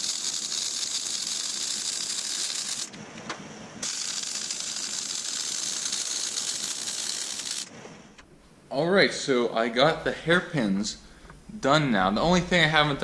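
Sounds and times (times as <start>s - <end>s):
welder arc crackling: 0.0s - 8.3s.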